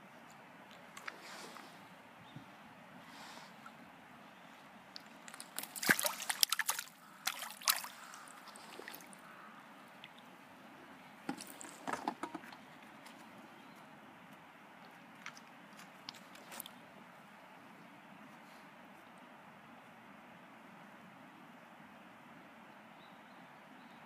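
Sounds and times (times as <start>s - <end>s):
fish splashing at water surface: 5.0s - 9.2s.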